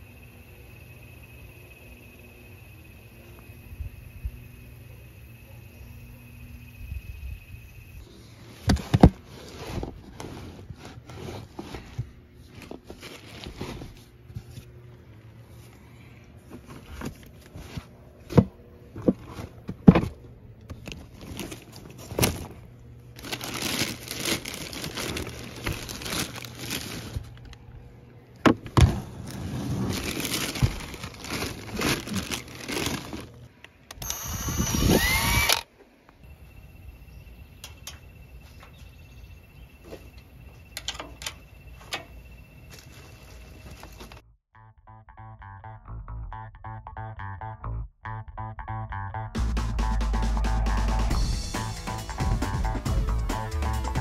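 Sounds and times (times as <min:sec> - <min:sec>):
plastic bags crinkling: 0:12.5 - 0:13.8, 0:20.8 - 0:27.6, 0:29.2 - 0:33.5
short rising whine: 0:34.0 - 0:35.6.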